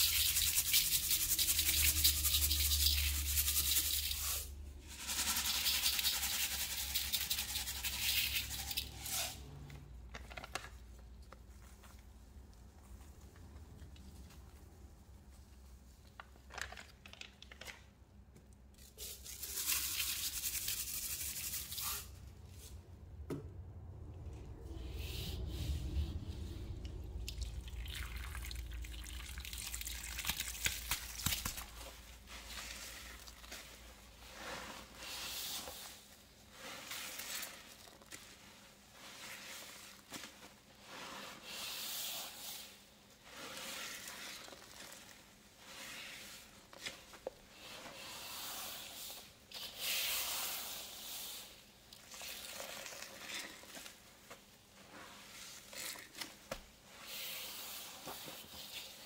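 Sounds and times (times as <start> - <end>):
hands squishing wet paste: 26.8 - 35.8.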